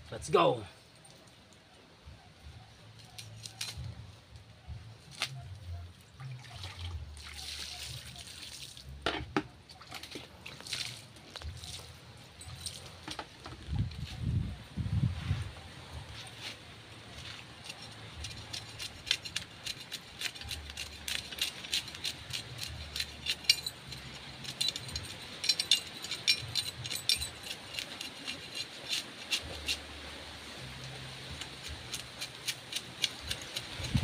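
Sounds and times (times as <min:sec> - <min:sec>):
knife scraping fish scales: 0:17.2 - 0:30.2, 0:30.9 - 0:34.0.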